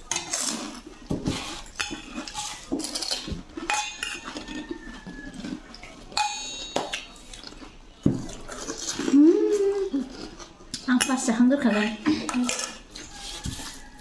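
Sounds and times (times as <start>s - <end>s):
metal spoon clinking plates: 1.7s - 4.7s, 6.1s - 7.2s, 10.8s - 13.2s.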